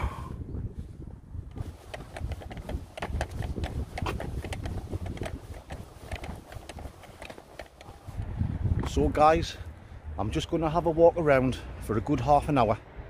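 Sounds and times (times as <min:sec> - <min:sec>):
wind rumble on microphone: 0:00.0 - 0:10.5
carried gear rattling: 0:01.5 - 0:08.2
footsteps on pavement: 0:01.6 - 0:09.0.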